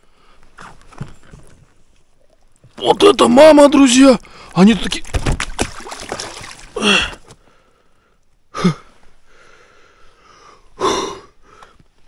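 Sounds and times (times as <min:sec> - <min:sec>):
knocks and splashing: 0:04.6 - 0:07.2
man gasping or grunting: 0:06.8 - 0:07.3.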